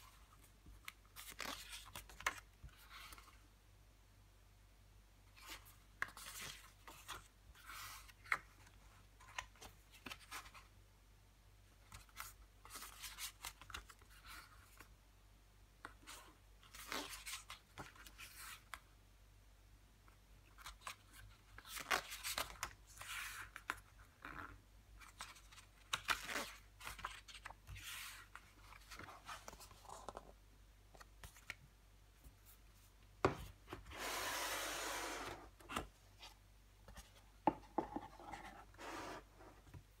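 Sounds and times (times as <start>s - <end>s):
booklet pages rustling: 0.0s - 3.5s, 25.0s - 31.6s.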